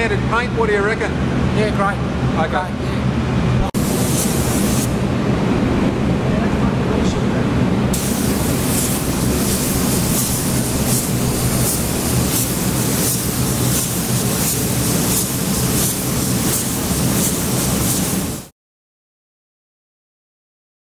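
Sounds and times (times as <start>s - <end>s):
low hum: 3.2s - 13.6s
paint spray gun hissing: 3.8s - 5.0s, 7.9s - 18.5s.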